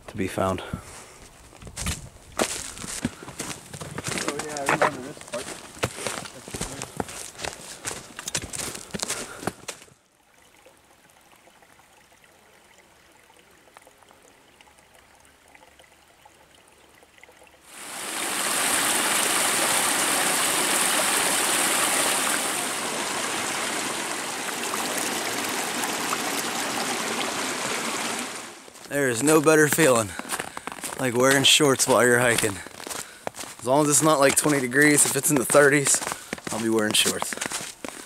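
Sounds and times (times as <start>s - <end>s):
stream water rushing: 17.6s - 38.0s.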